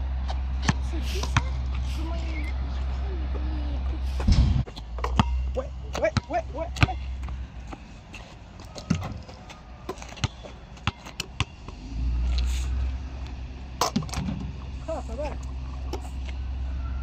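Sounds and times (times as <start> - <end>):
low rumble: 0.0 - 9.4
basketball bouncing on asphalt: 0.3 - 1.7, 4.2 - 11.7.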